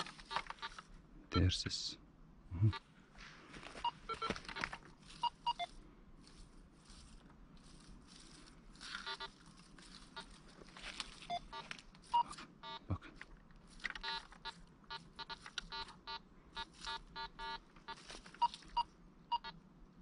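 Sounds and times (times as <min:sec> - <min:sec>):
rustle of dry leaves: 0:04.3 - 0:12.2, 0:17.8 - 0:18.8.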